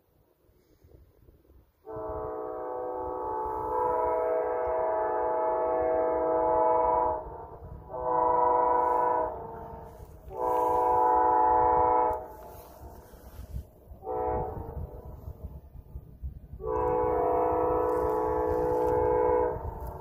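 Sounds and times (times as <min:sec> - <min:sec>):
locomotive air horn blasts: 0:01.8 - 0:15.6, 0:16.5 - 0:20.0.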